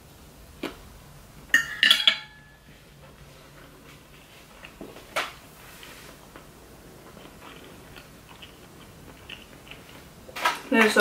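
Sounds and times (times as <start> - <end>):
fork clinking on ceramic plate: 1.6 - 2.6.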